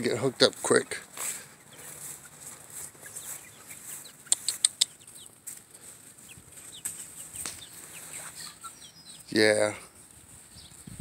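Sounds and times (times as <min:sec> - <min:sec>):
chickens clucking softly: 0:00.0 - 0:10.8
sharp clicks: 0:04.3 - 0:05.0.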